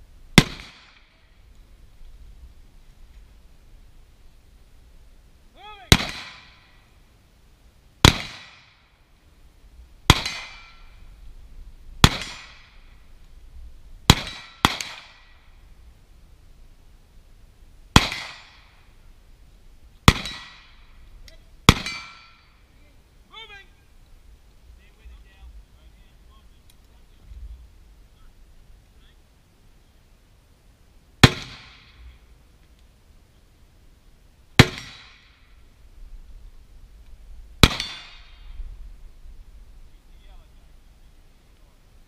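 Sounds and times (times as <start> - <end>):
rifle gunshots: 0.4 - 1.0, 5.9 - 6.6, 8.0 - 8.7, 10.1 - 10.8, 12.0 - 12.8, 14.1 - 15.3, 17.9 - 18.7, 20.0 - 20.8, 21.7 - 22.4, 31.2 - 32.0, 34.6 - 35.3, 37.6 - 38.4.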